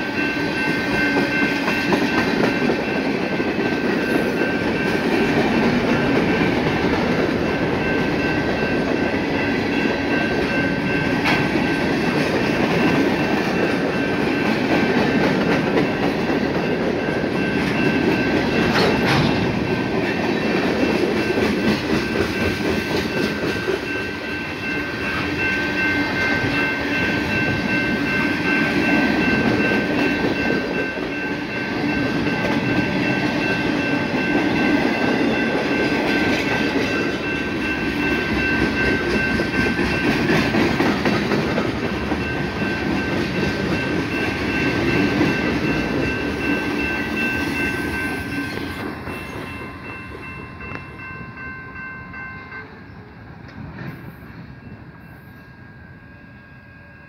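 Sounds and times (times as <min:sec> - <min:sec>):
high-pitched ring: 0:00.0 - 0:06.6, 0:15.8 - 0:40.3, 0:42.2 - 0:53.0, 0:54.0 - 0:57.0
freight train rumbling past: 0:00.0 - 0:57.0
wheels clattering over rail joints: 0:18.4 - 0:19.9.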